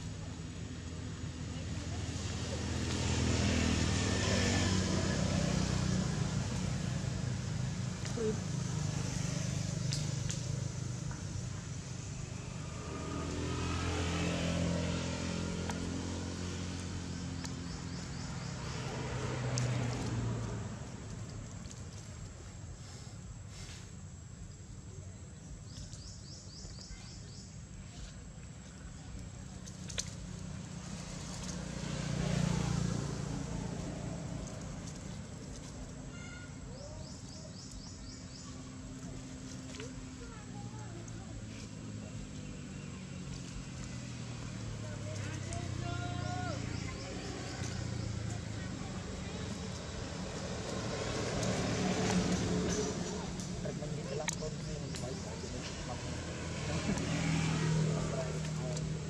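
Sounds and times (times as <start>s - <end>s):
vehicle engine running: 0.0s - 59.0s
bird chirping: 25.3s - 28.0s.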